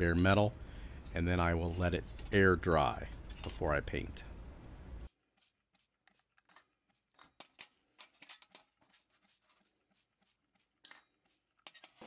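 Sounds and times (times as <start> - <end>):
toothbrush scrubbing metal: 5.0 - 12.0.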